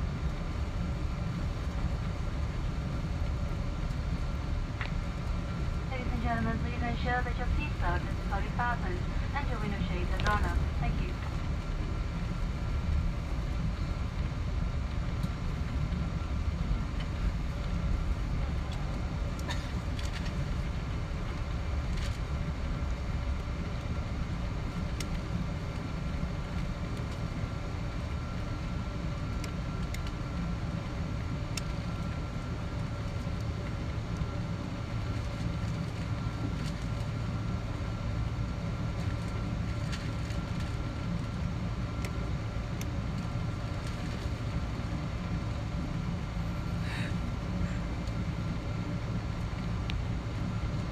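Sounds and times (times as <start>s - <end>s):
jet engines humming: 0.0s - 50.9s.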